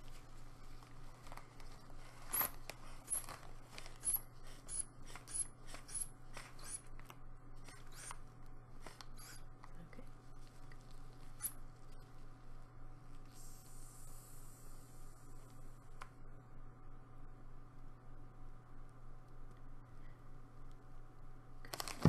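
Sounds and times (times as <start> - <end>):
rubber bulb squeezed pumping: 4.0 - 6.9, 8.9 - 9.4.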